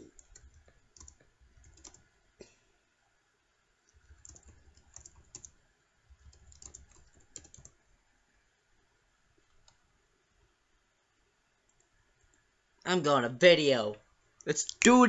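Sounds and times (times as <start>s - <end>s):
faint keyboard typing: 0.0s - 2.2s, 3.8s - 7.8s, 9.4s - 9.9s, 11.6s - 12.5s.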